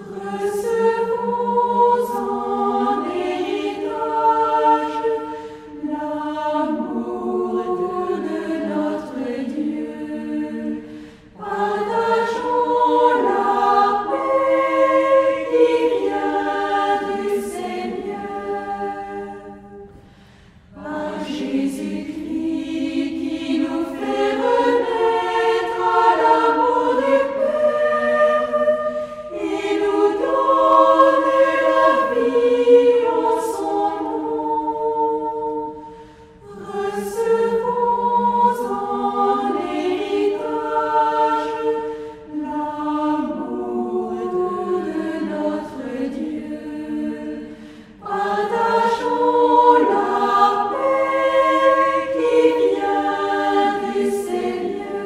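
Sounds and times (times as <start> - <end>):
choir singing: 0.0 - 55.0
singers breathing: 5.2 - 5.8, 10.7 - 11.4, 19.8 - 20.8, 28.8 - 29.4, 35.7 - 36.5, 41.8 - 42.3, 47.4 - 48.1.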